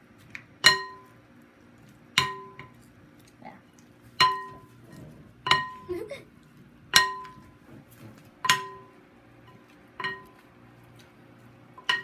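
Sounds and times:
glass ringing: 0.6s - 1.1s, 4.2s - 4.7s, 6.9s - 7.4s, 8.4s - 9.0s, 10.0s - 10.4s, 11.8s - 12.0s
wooden spoons clinking glass bowl: 0.6s - 1.2s, 2.2s - 2.8s, 4.2s - 4.8s, 5.4s - 5.9s, 6.9s - 7.6s, 8.4s - 8.9s, 9.5s - 10.4s, 11.8s - 12.0s.

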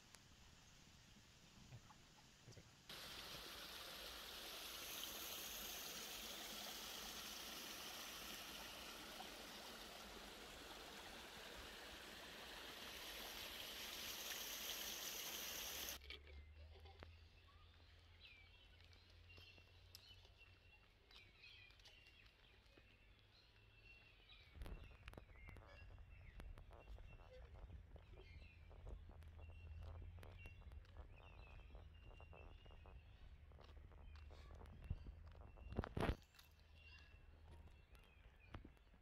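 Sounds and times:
stream trickling over rocks: 2.9s - 16.0s
faint bird chirps: 23.0s - 33.4s.

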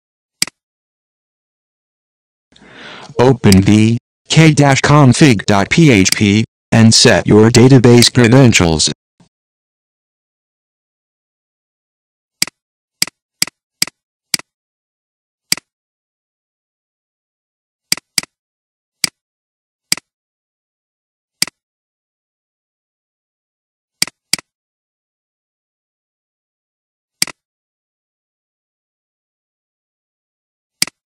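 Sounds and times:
computer mouse clicks: 27.2s - 27.4s.

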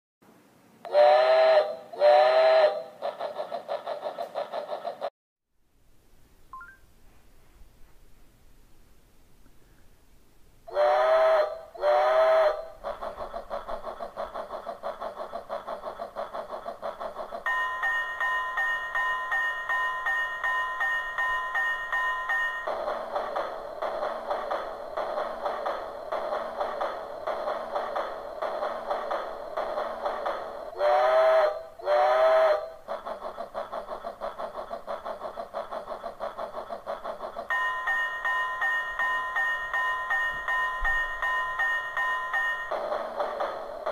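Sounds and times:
steam whistle blasts: 0.9s - 3.0s, 10.7s - 12.8s, 30.8s - 32.8s
steam engine chugging: 0.9s - 5.1s, 10.7s - 43.9s.

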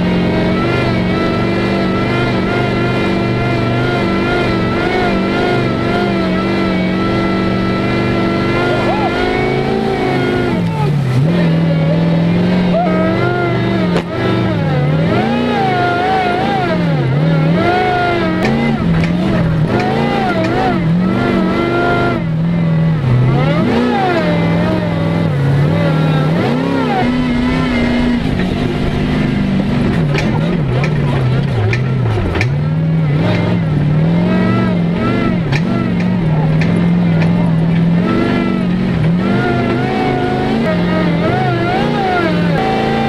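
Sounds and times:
buggy engine revving: 0.0s - 43.0s.

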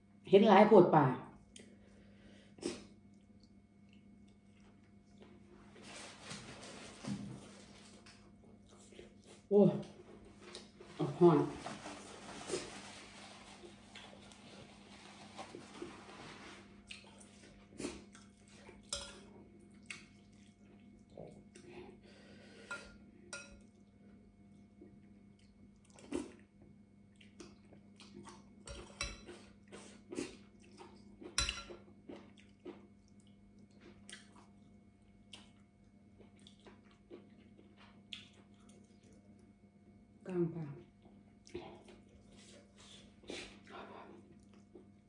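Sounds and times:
faint steady hum: 0.0s - 45.0s
chewing: 2.6s - 5.8s, 7.6s - 10.9s, 13.5s - 15.9s, 16.8s - 22.0s, 24.5s - 39.5s, 40.8s - 45.0s.

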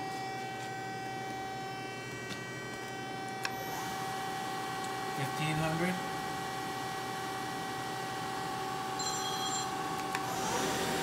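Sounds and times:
lathe whine and hum: 0.0s - 11.0s.

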